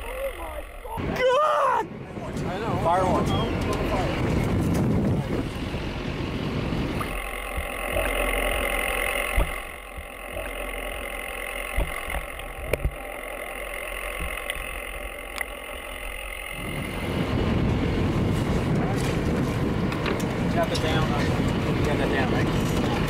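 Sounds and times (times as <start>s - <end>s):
underwater hum of held tones: 0.0s - 2.2s, 2.8s - 23.0s
boat and wind noise: 0.0s - 23.0s
sharp underwater clicks and knocks: 11.7s - 13.0s.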